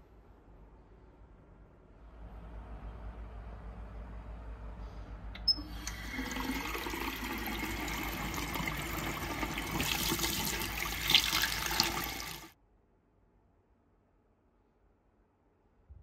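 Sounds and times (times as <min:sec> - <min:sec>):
faucet click: 0:05.4 - 0:06.4
water running into basin: 0:05.6 - 0:12.6.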